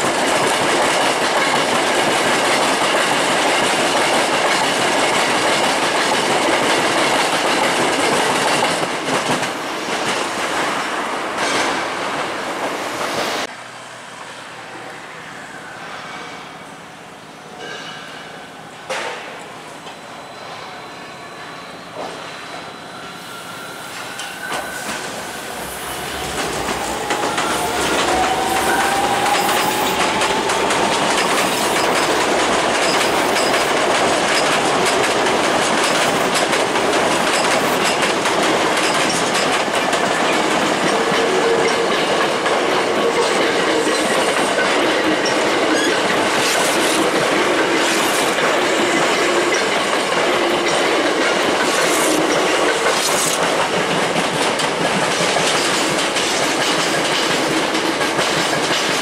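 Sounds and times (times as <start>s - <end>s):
electric trains passing: 0.0s - 59.0s
rising train whine: 0.0s - 59.0s
wheels clattering over rail joints: 24.6s - 59.0s.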